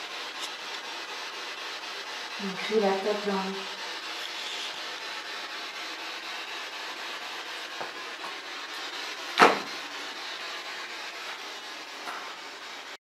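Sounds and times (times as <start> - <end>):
steady hiss: 0.0 - 13.0
loud thump: 9.4 - 9.7.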